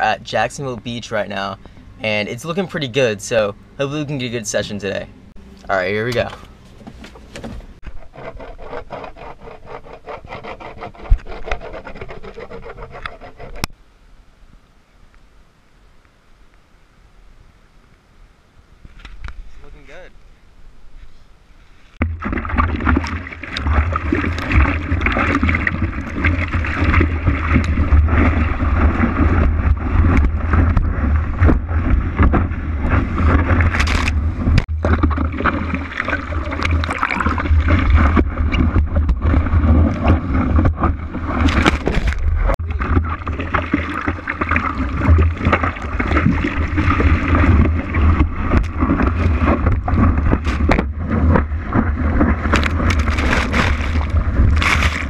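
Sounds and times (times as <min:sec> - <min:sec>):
low rumble of water on camera: 0:22.0 - 0:55.0
ocean water rushing and splashing: 0:22.0 - 0:55.0.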